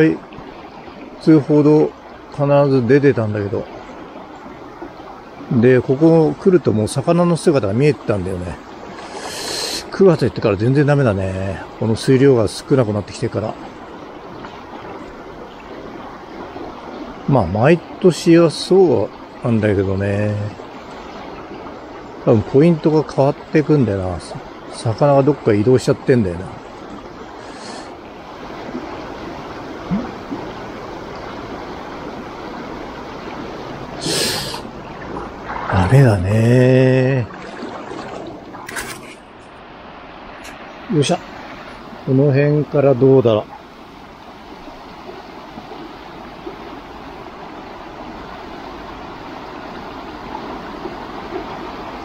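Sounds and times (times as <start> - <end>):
river water rushing: 0.0 - 52.0.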